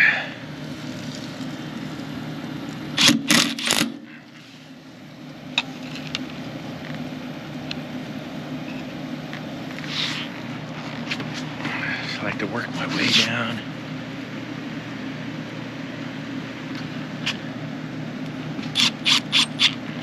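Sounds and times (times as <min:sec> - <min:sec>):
heat pump compressor and fan hum: 0:00.0 - 0:20.0.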